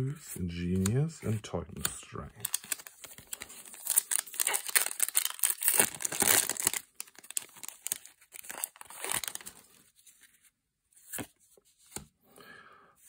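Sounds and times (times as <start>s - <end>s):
foil wrapper crinkling and tearing: 2.4s - 9.8s.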